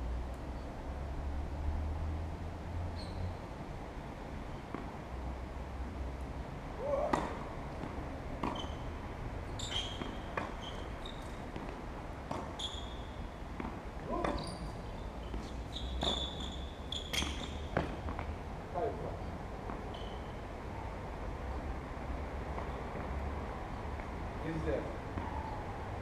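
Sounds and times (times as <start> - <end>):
shoe squeaks: 2.9 - 3.3, 8.4 - 8.9, 9.5 - 11.5, 12.4 - 13.2, 14.1 - 18.1, 19.8 - 20.4
tennis ball struck by racket: 6.9 - 8.8, 9.9 - 10.6, 11.5 - 12.6, 17.2 - 18.4
ball bouncing on court: 6.9 - 8.9, 9.6 - 13.0, 13.6 - 14.6, 15.2 - 18.4.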